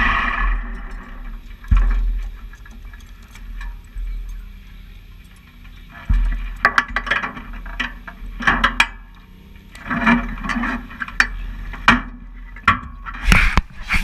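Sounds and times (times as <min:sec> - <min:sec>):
low steady hum: 0:00.0 - 0:14.0
rustling close to microphone: 0:13.2 - 0:14.0.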